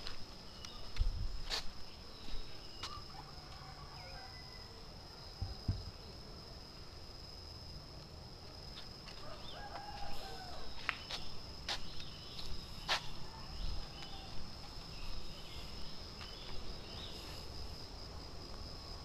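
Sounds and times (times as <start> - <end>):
small birds chirping: 0.4 - 3.0, 9.3 - 17.6
rooster crowing: 2.9 - 5.0, 9.2 - 10.8, 13.2 - 14.5.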